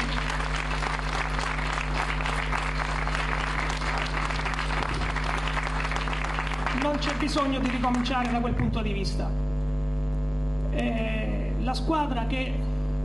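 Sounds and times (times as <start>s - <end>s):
crowd clapping: 0.0s - 8.8s
faint low electrical hum: 0.0s - 13.0s.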